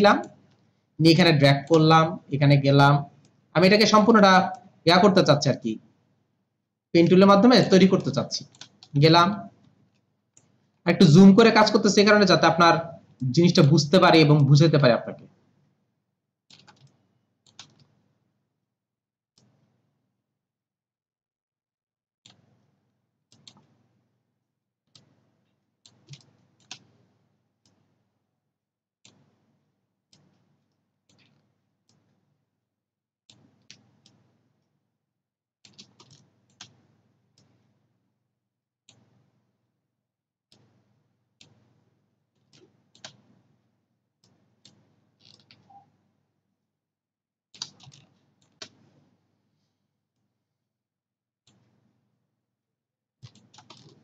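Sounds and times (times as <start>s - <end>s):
keyboard clicks: 7.1s - 9.5s, 16.5s - 17.9s, 23.3s - 23.8s, 25.9s - 27.0s, 31.1s - 32.1s, 35.6s - 36.8s, 42.4s - 43.3s, 44.2s - 45.8s, 47.6s - 48.8s, 53.2s - 54.0s
computer mouse clicks: 7.9s - 10.6s, 16.5s - 18.0s, 19.4s - 19.7s, 22.2s - 22.7s, 23.3s - 23.9s, 24.9s - 27.9s, 29.0s - 29.5s, 30.1s - 32.2s, 33.3s - 34.8s, 35.6s - 37.7s, 38.9s - 39.2s, 40.5s - 40.8s, 41.4s - 41.7s, 42.4s - 43.4s, 44.2s - 45.9s, 47.6s - 49.0s, 51.4s - 51.7s, 53.2s - 54.0s
faint mouse clicks: 16.5s - 17.9s, 23.3s - 23.8s, 25.9s - 27.0s, 30.1s - 32.1s, 42.4s - 43.4s, 47.6s - 48.8s.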